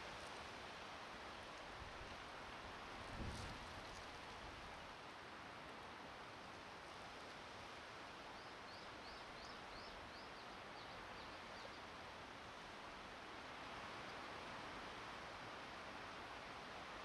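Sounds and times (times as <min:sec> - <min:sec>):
wind noise: 0:03.0 - 0:04.5.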